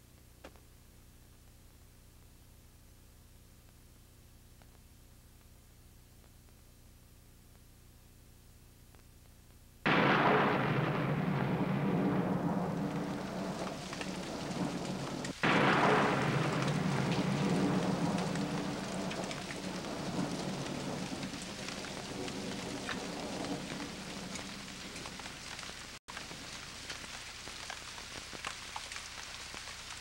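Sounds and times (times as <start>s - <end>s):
low rumble: 9.9s - 26.0s
rain-like rushing noise: 9.9s - 30.0s.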